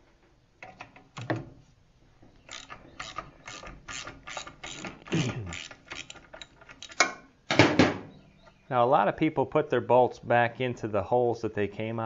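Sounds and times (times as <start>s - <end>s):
ratchet wrench clicking: 2.5s - 7.0s.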